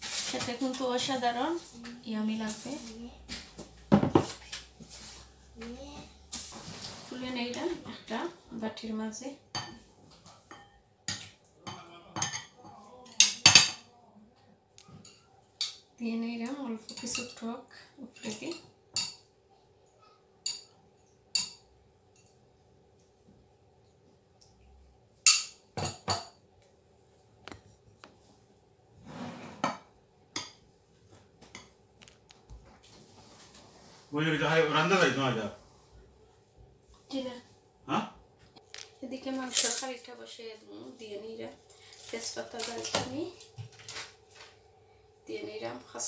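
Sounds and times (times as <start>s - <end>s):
dishes scraping on counter: 3.5s - 5.3s, 29.0s - 30.6s
clattering dishes: 3.9s - 4.4s, 9.6s - 13.9s, 25.2s - 26.4s, 29.2s - 30.6s.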